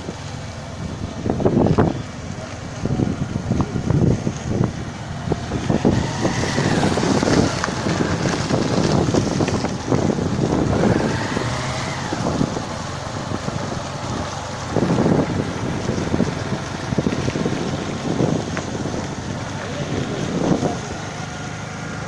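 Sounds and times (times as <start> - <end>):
motorcycle engine passing: 0.0 - 22.0
wind buffeting microphone: 0.0 - 22.0.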